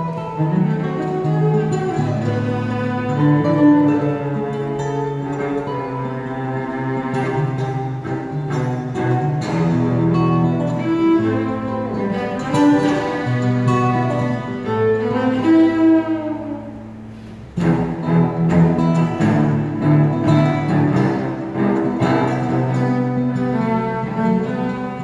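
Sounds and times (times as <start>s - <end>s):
cello and guitar duet: 0.0s - 25.0s.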